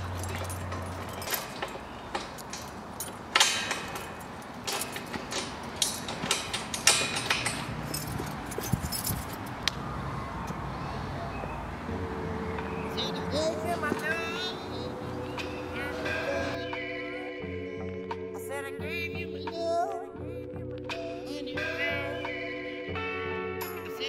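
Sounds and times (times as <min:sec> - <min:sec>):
keys jangling against padlock: 0:00.0 - 0:09.6
metal gate lock rattling: 0:00.0 - 0:09.7.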